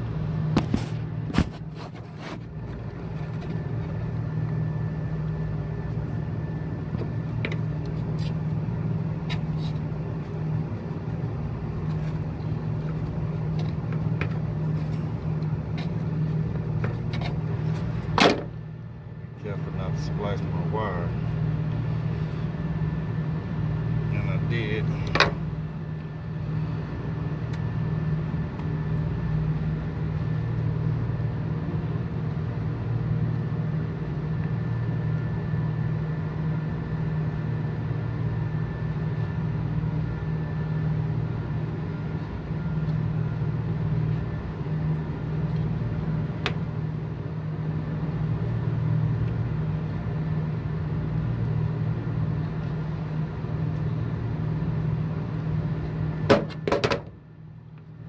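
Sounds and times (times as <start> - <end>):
low machine hum: 0.0 - 58.0.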